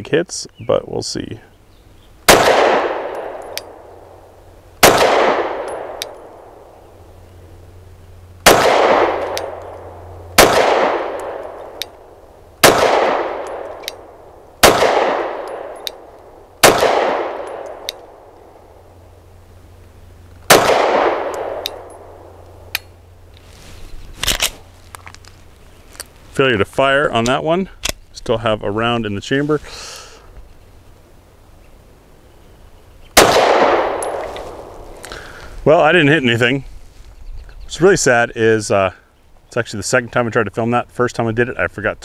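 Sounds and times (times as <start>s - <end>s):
pistol shots echoing: 2.3s - 4.0s, 4.8s - 6.6s, 8.4s - 11.8s, 12.6s - 18.3s, 20.5s - 22.3s, 33.2s - 34.8s.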